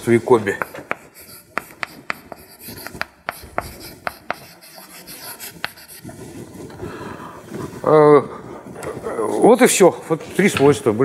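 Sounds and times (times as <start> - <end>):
chalk tapping on blackboard: 0.0 - 6.6
chalk scratching on blackboard: 0.0 - 7.8.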